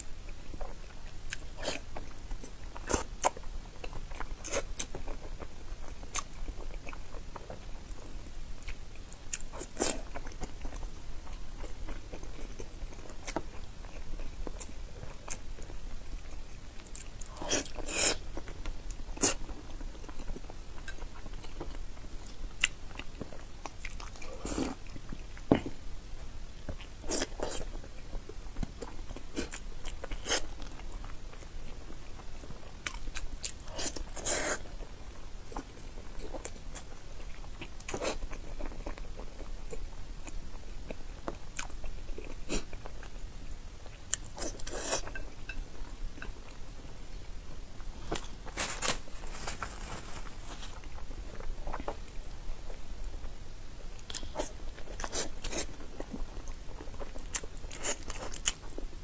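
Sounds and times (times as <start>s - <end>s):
close mouth chewing sounds: 8.6s - 25.8s, 35.5s - 46.6s, 54.0s - 58.8s.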